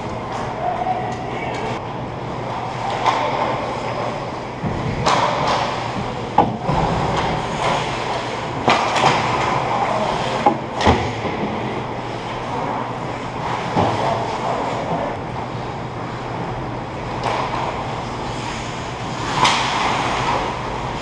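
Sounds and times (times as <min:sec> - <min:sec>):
hockey sticks and puck clacking: 0:02.6 - 0:11.6, 0:17.2 - 0:17.8, 0:19.1 - 0:21.0.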